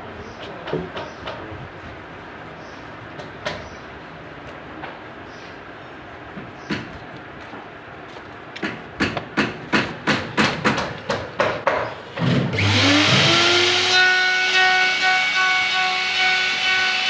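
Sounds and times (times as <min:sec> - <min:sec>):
knocks: 0:08.6 - 0:12.0
electric router motor whine: 0:12.5 - 0:17.0.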